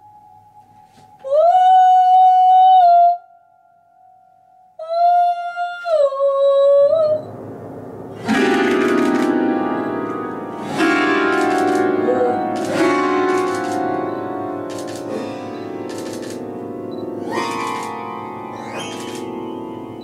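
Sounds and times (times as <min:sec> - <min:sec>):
woman humming: 0:04.8 - 0:07.3, 0:12.0 - 0:12.5
piano strings resonating: 0:07.2 - 0:20.0
hand strumming piano strings: 0:08.1 - 0:20.0.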